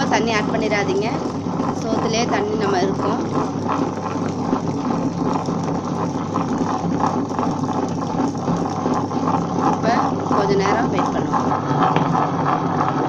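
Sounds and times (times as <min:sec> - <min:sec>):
wet grinder humming: 0:00.0 - 0:13.0.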